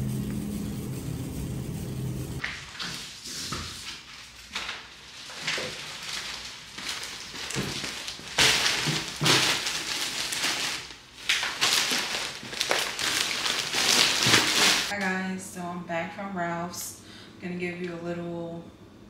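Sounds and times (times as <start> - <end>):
plastic bags rustling: 2.4 - 15.0.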